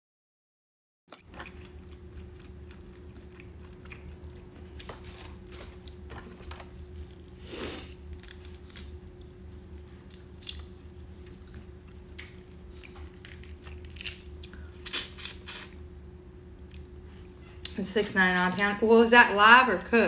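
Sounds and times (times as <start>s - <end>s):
steady low hum: 1.1s - 20.0s
crawfish shells cracking: 8.0s - 15.6s.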